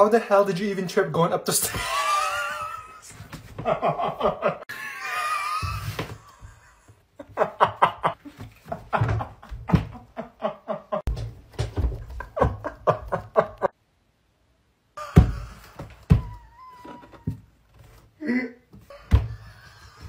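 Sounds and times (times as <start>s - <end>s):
person laughing hard: 1.6s - 11.1s, 12.2s - 13.7s.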